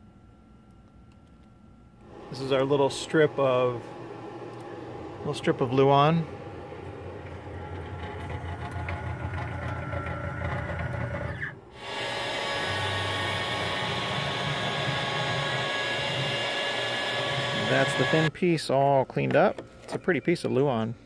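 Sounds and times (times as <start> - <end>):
router cutting plywood: 9.1 - 18.3.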